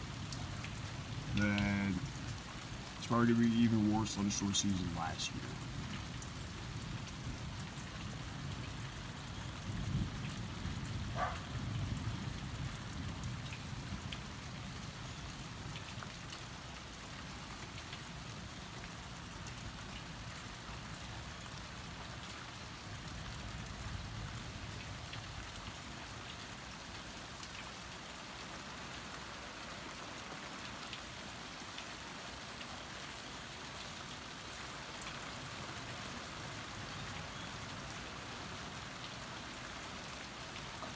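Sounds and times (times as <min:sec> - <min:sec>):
steady rain falling: 0:00.0 - 0:40.9
low rumble of thunder: 0:05.8 - 0:14.9.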